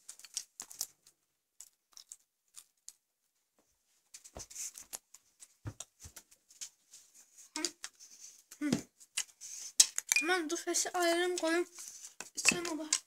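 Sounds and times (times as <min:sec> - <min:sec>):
clicks and rustles of handling: 0:00.0 - 0:10.2, 0:10.9 - 0:13.0.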